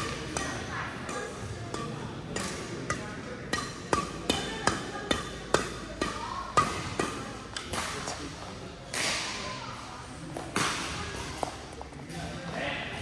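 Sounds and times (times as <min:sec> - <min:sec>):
badminton rackets hitting shuttlecock: 0:00.0 - 0:09.5.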